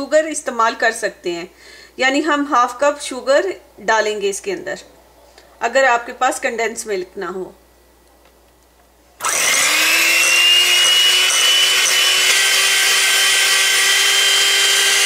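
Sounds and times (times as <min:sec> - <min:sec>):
electric hand mixer whine: 0:09.2 - 0:15.0.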